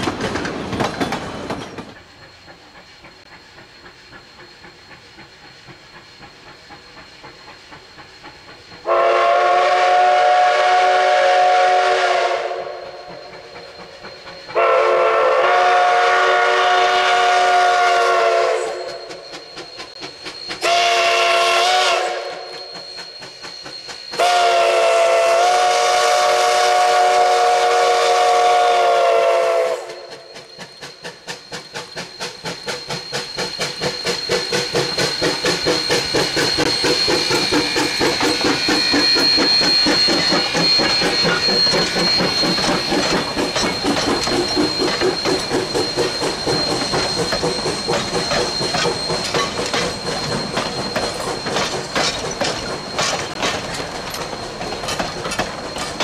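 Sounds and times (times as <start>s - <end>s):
steam locomotive exhaust chuffing: 0.0s - 56.0s
steam locomotive whistle: 8.5s - 51.8s.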